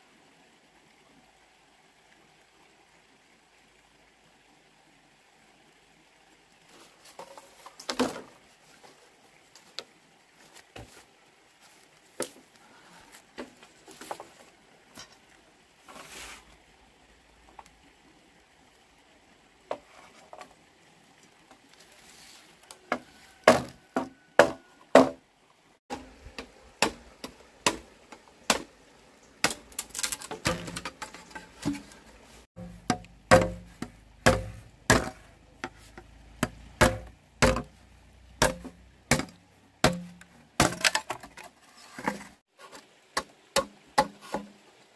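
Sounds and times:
bamboo poles knocking: 7.2 - 8.3, 22.8 - 25.2, 25.9 - 28.7, 29.4 - 37.8, 38.4 - 42.3, 43.2 - 44.6
sharp strikes: 32.6 - 35.2.

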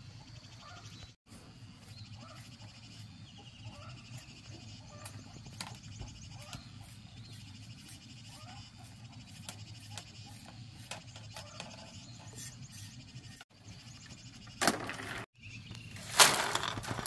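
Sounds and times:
knife scraping bamboo: 5.0 - 13.4
bamboo strips rattling: 14.6 - 15.3, 15.9 - 17.0.

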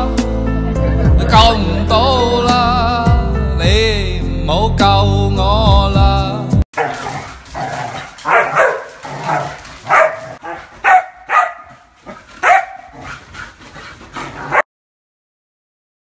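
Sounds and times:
puppy barking and yipping: 6.8 - 14.6.

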